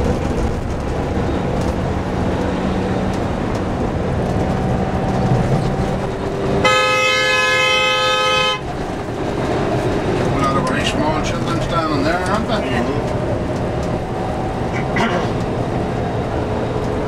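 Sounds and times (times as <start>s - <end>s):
coach engine: 0.0s - 17.0s
road noise: 0.0s - 17.0s
coach horn blast: 6.6s - 8.7s.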